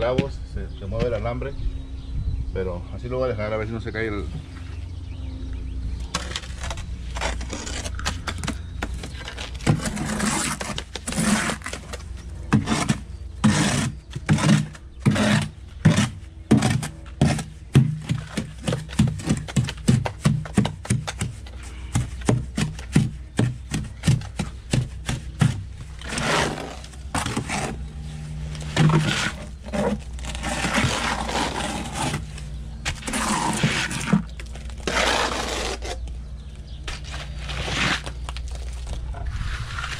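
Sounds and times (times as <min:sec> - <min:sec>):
trowel scraping mortar on mesh: 0:06.2 - 0:22.8, 0:23.4 - 0:27.8, 0:28.5 - 0:36.0, 0:36.9 - 0:38.2.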